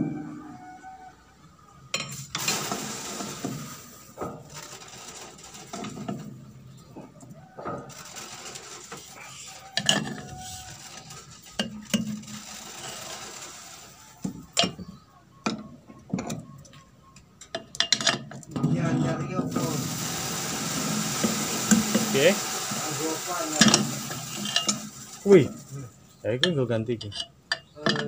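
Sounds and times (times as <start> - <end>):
metal scraping: 3.7 - 14.8.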